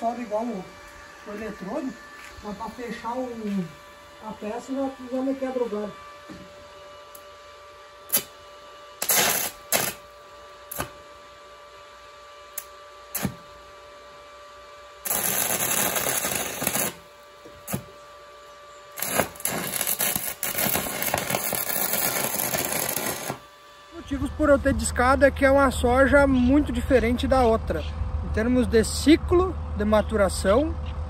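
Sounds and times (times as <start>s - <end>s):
crackling welding arc: 8.1s - 8.4s, 9.0s - 11.1s, 12.5s - 13.6s, 15.0s - 18.0s, 18.9s - 23.5s.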